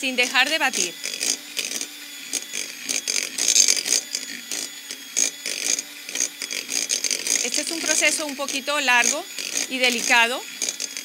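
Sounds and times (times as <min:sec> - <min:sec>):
beaters scraping glass bowl: 0:00.0 - 0:11.0
electric hand mixer running: 0:00.0 - 0:11.0.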